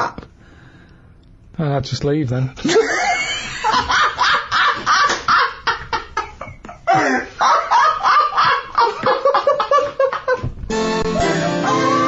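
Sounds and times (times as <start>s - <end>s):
men laughing loudly: 2.6s - 10.6s.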